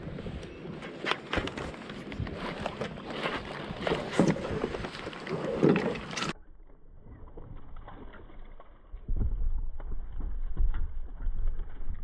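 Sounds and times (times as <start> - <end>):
low rumble on microphone: 3.7 - 12.0.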